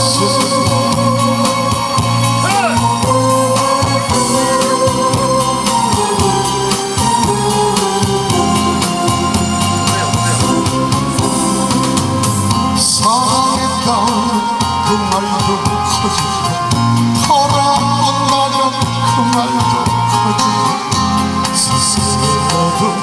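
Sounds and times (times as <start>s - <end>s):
man singing into a microphone: 0.0s - 11.4s, 12.7s - 23.0s
steady drum beat: 0.0s - 20.4s
amplified live music: 0.0s - 23.0s.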